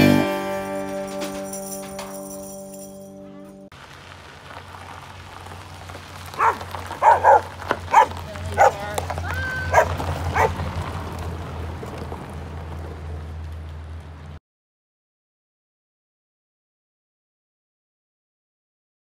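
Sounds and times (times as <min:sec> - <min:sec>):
car engine running: 0:03.8 - 0:14.4
dog whining: 0:06.4 - 0:08.8, 0:09.5 - 0:10.5
dog barking: 0:06.4 - 0:08.9, 0:09.7 - 0:10.6.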